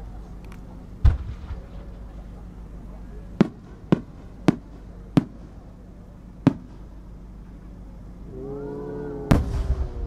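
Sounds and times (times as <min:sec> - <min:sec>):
distant firework shells bursting: 0:03.4 - 0:05.8, 0:06.4 - 0:07.1, 0:09.3 - 0:10.0.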